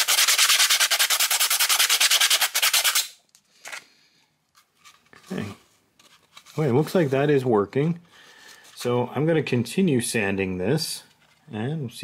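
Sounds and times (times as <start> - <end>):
hand sanding strokes: 0.0 - 3.1
faint handling noises: 3.3 - 8.9, 11.0 - 11.7.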